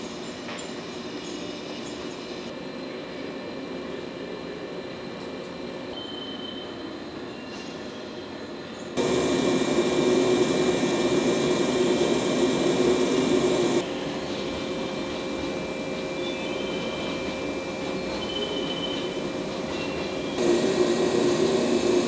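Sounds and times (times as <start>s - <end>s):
electric train equipment humming: 6.9s - 22.0s.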